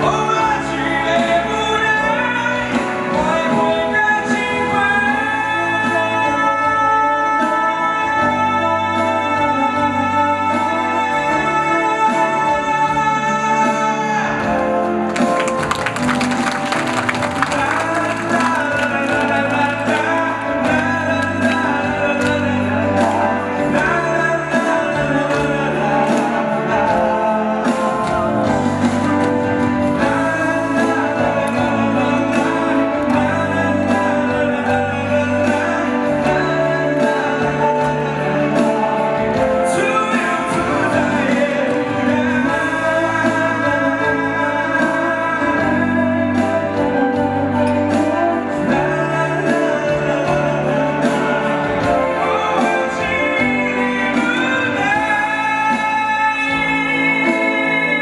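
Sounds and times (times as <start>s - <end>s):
man singing into microphone: 0.0s - 58.0s.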